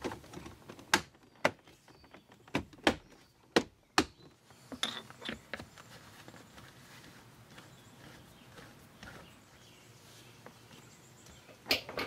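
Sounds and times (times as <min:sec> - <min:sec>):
faint handling sounds: 0:04.3 - 0:12.0.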